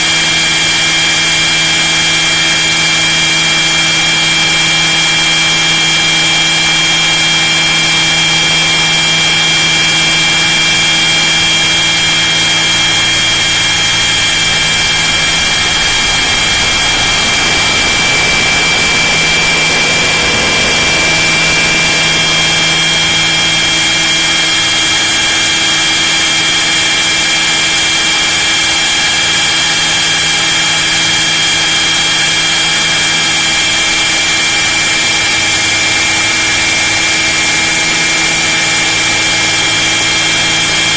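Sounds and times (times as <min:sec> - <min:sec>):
model helicopter motor whine: 0:00.0 - 0:40.9
rushing noise: 0:08.4 - 0:27.7.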